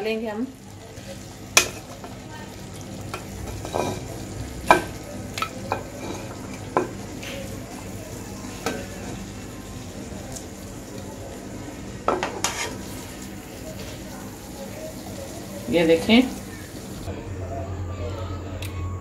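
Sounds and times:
chicken sizzling faintly in a pan: 0:00.0 - 0:17.2
spatula scraping and knocking: 0:12.2 - 0:12.9.

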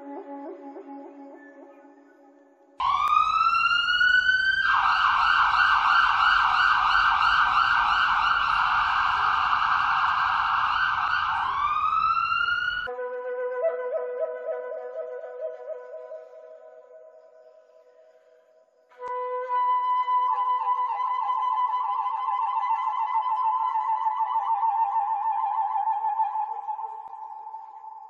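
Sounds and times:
emergency vehicle siren: 0:02.8 - 0:12.9.

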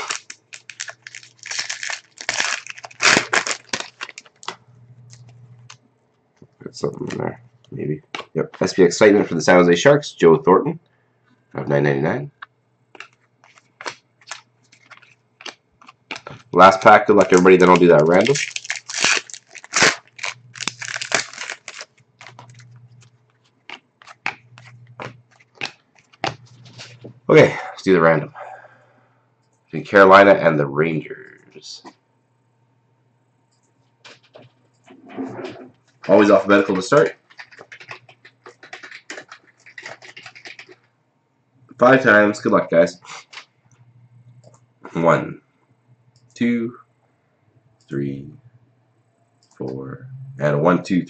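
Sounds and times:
foil wrapper crinkling: 0:00.0 - 0:05.8, 0:13.0 - 0:27.1, 0:36.0 - 0:40.9
trading cards rustling: 0:00.0 - 0:05.8, 0:13.0 - 0:27.1, 0:36.0 - 0:40.9
faint low hum: 0:00.0 - 0:51.0.

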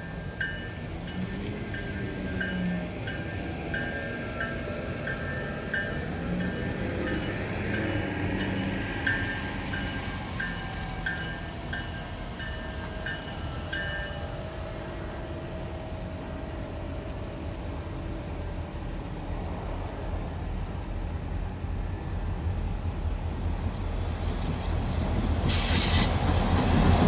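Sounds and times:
diesel locomotive engine rumble: 0:00.0 - 0:27.0.

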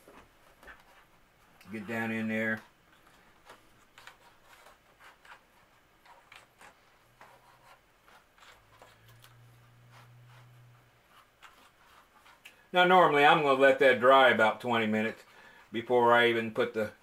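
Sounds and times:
cotton swab scratching plastic: 0:00.5 - 0:12.7.

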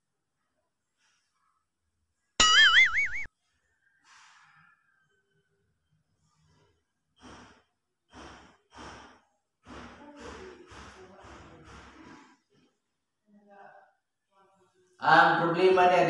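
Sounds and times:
loud warbling chime tone: 0:02.4 - 0:03.3.

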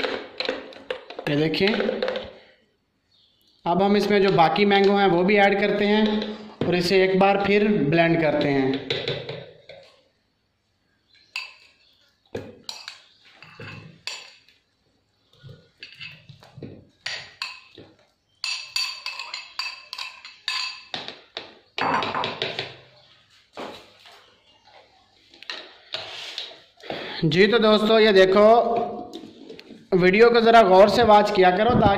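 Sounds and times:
metal spoon clinking on glass bowl: 0:18.4 - 0:21.0.

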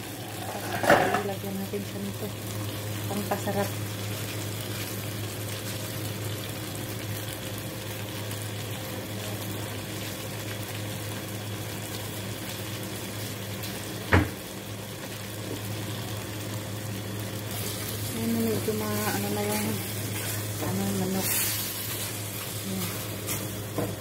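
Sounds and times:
pot bubbling: 0:00.0 - 0:08.7, 0:14.9 - 0:24.0.

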